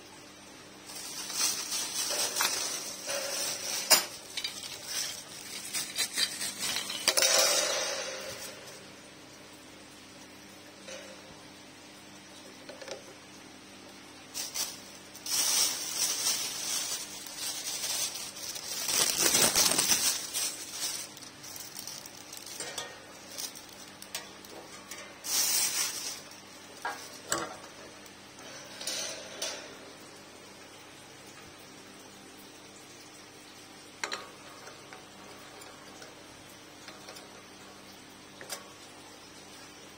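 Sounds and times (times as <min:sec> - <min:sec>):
rustling and scraping of parts: 0:00.9 - 0:09.0, 0:14.4 - 0:30.0.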